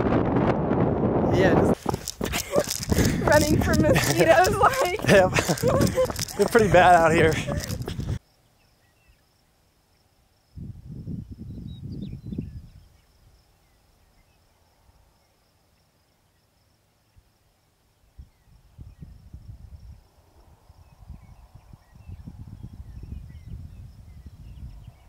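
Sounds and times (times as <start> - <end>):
wind rumbling on microphone: 0.0 - 8.2, 10.5 - 13.4, 18.1 - 25.0
insects trilling: 1.5 - 10.6.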